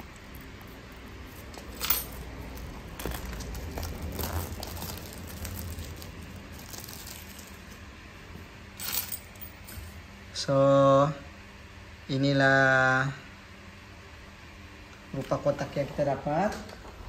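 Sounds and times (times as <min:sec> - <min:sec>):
plastic wrapping crinkling: 0:00.0 - 0:07.8.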